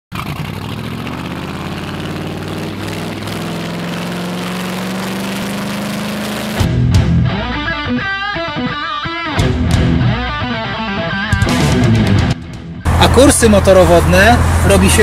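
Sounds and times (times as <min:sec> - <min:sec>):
motorboat engine drone: 0:00.2 - 0:06.6.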